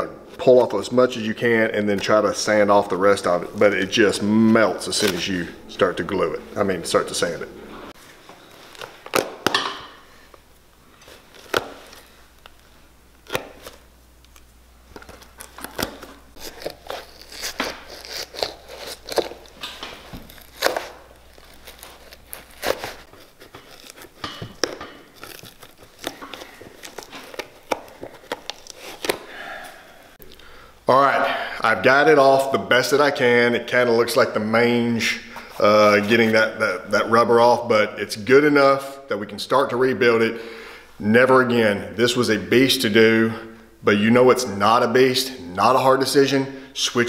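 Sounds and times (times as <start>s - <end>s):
rubber tearing and snapping: 4.4s - 5.3s, 8.7s - 9.6s, 11.1s - 12.6s, 13.2s - 29.3s
knife scraping leather: 15.4s - 29.2s.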